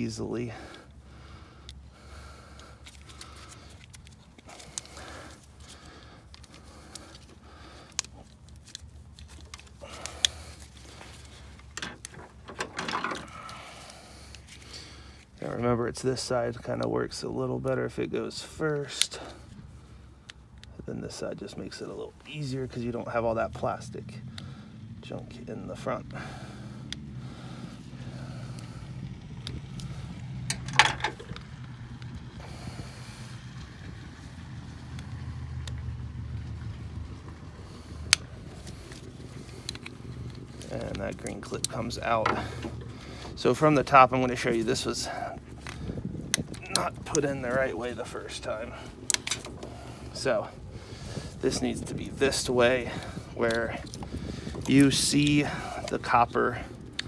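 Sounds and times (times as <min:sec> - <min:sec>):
low mechanical hum: 0:00.0 - 0:57.0
handling noise: 0:02.8 - 0:13.8, 0:30.4 - 0:31.7
sharp plastic clicks: 0:48.9 - 0:49.7, 0:56.8 - 0:57.0.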